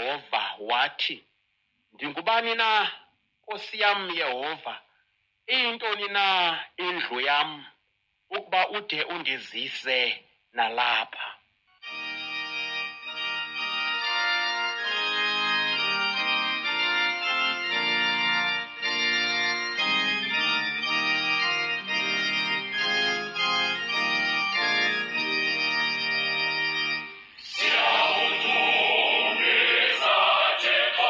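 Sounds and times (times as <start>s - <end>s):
organ playing chords: 11.8s - 31.0s
choir singing: 27.4s - 31.0s.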